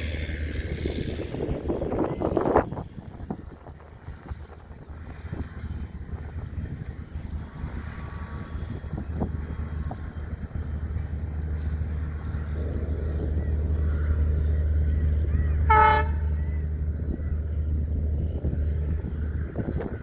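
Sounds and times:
train rumbling past: 0.0 - 20.0
locomotive horn toot: 15.4 - 16.5.

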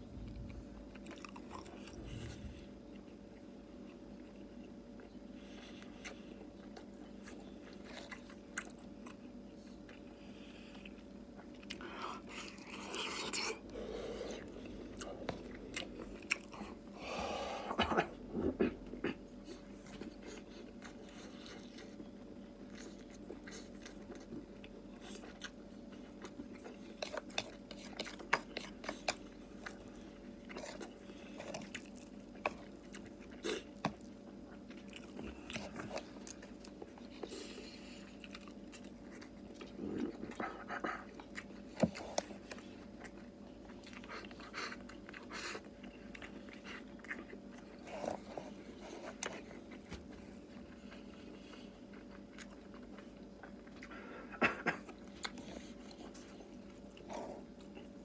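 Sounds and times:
faint steady hum: 0.0 - 58.0
man chewing: 0.0 - 58.0.

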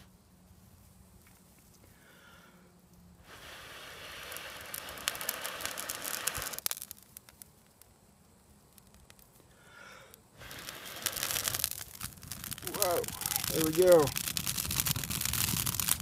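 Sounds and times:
breath blowing on ember: 1.9 - 6.7, 9.4 - 13.6
tinder crackling: 2.8 - 16.0.

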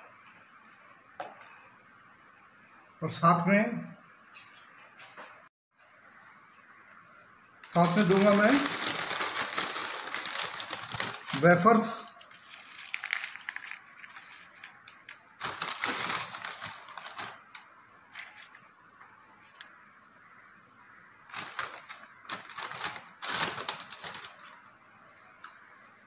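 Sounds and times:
potato chips crackling and rustling: 7.6 - 18.7, 21.3 - 24.7.

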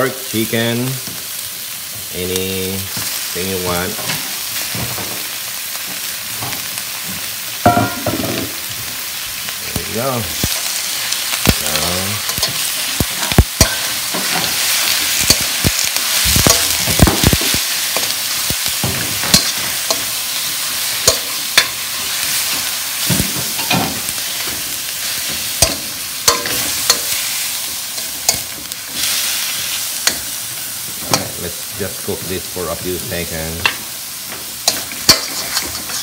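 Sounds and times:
meat sizzling in hot oil: 0.0 - 36.0
metal spatula scraping a wok: 34.6 - 36.0.

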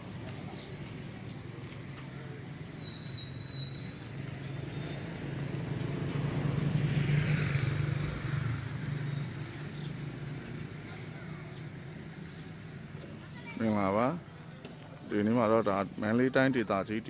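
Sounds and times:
vehicle engine passing by: 4.0 - 11.1.

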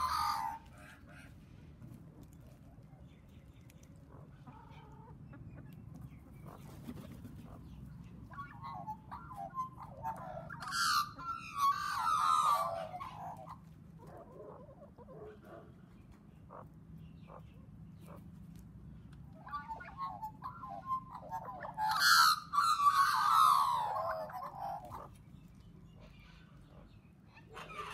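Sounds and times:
magpies warbling: 0.0 - 1.4, 6.3 - 18.3, 19.2 - 25.2
chickens calling: 0.0 - 27.9.

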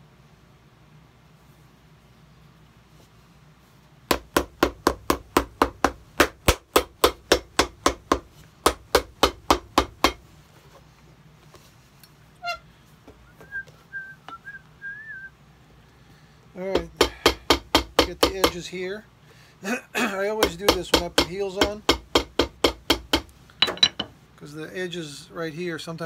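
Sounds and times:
hammer pounding shoe heel: 4.1 - 10.2, 16.7 - 18.6, 20.4 - 24.1
person whistling: 13.2 - 15.3.

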